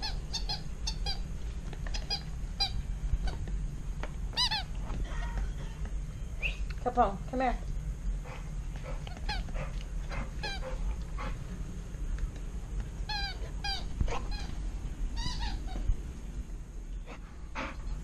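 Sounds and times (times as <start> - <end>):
high toy squeaks: 0.0 - 1.2, 4.4 - 4.7, 13.1 - 14.6, 15.2 - 15.9
dog chewing squeaky toy: 0.0 - 3.5, 4.3 - 5.8, 9.1 - 9.5, 10.4 - 10.8, 13.1 - 14.6, 15.2 - 15.9.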